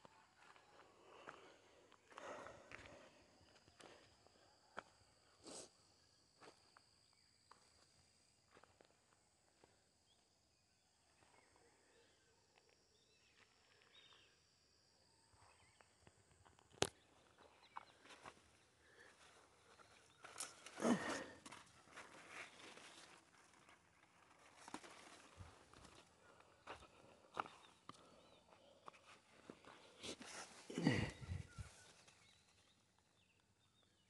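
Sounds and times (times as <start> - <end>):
rustling of plants: 19.2 - 26.2, 29.0 - 32.8
footsteps among plants: 19.2 - 32.4.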